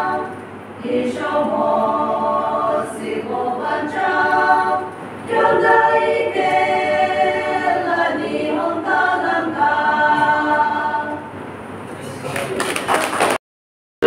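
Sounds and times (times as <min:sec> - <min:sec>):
choir singing unaccompanied: 0:00.0 - 0:11.6.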